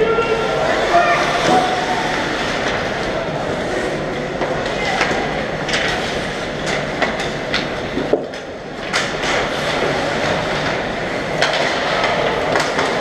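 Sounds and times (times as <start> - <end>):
hockey sticks and puck clacking: 4.4 - 13.0.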